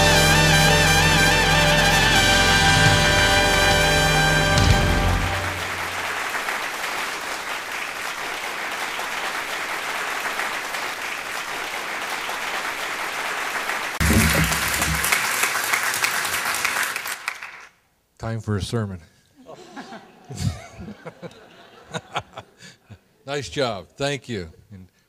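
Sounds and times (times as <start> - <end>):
brass music: 0.0 - 6.2, 14.0 - 15.3
audience applauding: 0.0 - 17.8.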